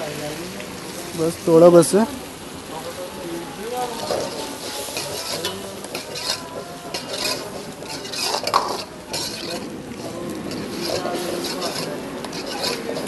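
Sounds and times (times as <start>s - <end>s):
metal ladle scraping gravy: 4.0s - 13.0s.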